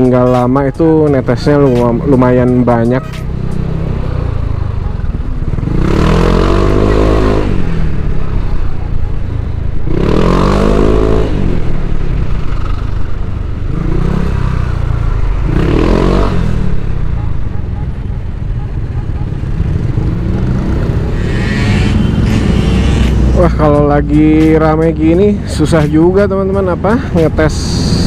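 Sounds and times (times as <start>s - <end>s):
scooter engine revving: 3.3s - 8.4s, 9.8s - 24.0s.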